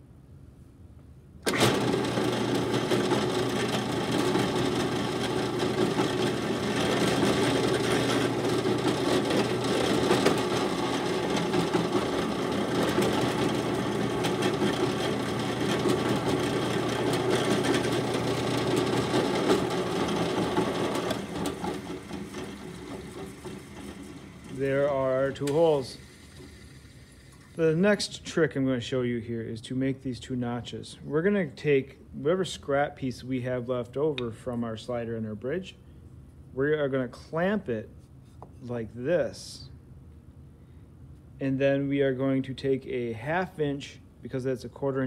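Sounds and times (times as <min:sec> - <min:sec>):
drill press motor humming: 0:01.4 - 0:27.5.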